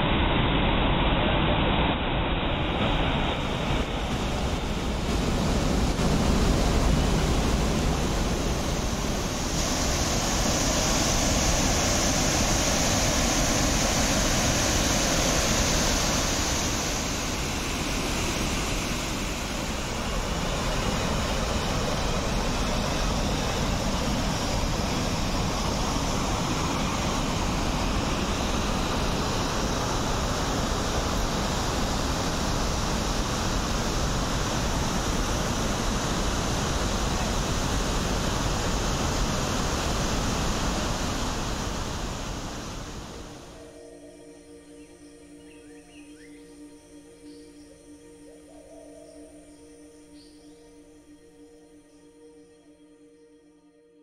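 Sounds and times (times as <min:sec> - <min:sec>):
waterfall rushing over rocks: 0:01.5 - 0:43.6.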